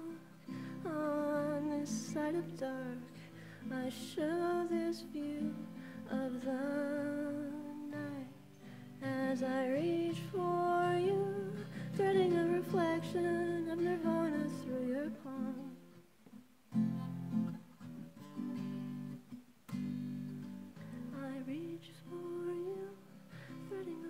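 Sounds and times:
acoustic guitar: 0.0s - 24.0s
woman singing long notes: 9.0s - 15.8s, 21.1s - 24.0s.

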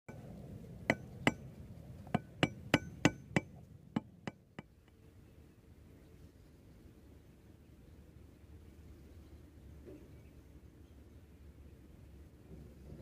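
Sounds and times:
hard tool tapping: 0.9s - 1.4s, 2.1s - 4.9s.

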